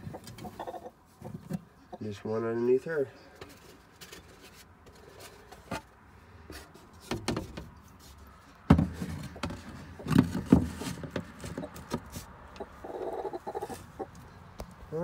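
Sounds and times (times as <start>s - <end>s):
hen clucking: 0.0s - 3.4s, 11.3s - 11.9s, 12.5s - 14.4s.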